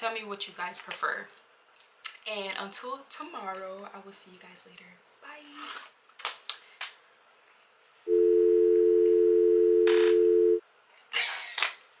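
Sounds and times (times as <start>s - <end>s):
electronic two-note tone: 8.1s - 10.6s.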